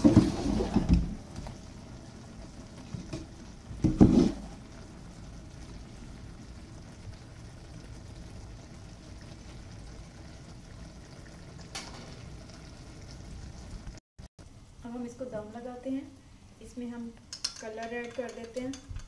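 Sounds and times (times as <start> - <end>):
spoon knocking against pot: 17.3 - 19.0.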